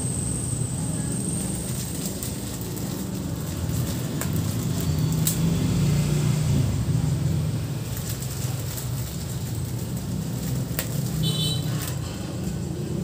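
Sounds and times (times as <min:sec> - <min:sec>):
plastic bags crinkling: 0:01.3 - 0:05.5, 0:07.6 - 0:12.4.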